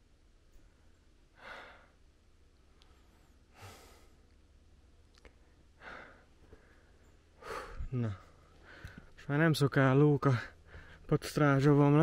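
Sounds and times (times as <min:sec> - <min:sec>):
person breathing hard: 0:01.4 - 0:02.0, 0:03.0 - 0:04.2, 0:05.8 - 0:09.1, 0:10.5 - 0:11.1.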